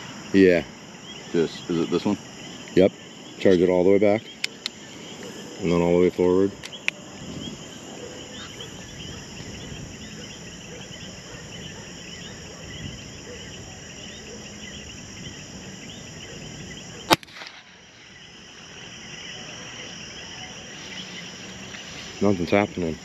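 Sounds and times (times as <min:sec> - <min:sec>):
night insects chirping: 0:00.0 - 0:23.0
airgun shot: 0:17.1 - 0:17.8.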